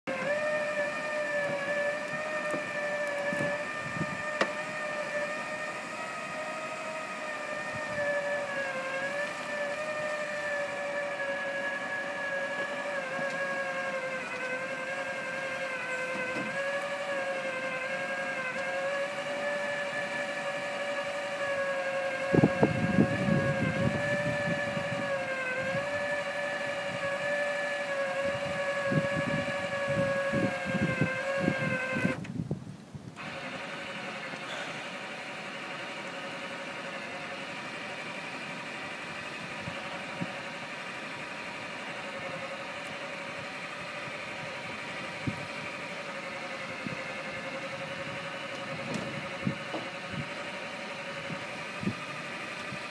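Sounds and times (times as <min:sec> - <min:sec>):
motor whining: 0:00.0 - 0:32.5, 0:33.1 - 0:52.9
low rumbling: 0:00.1 - 0:32.6.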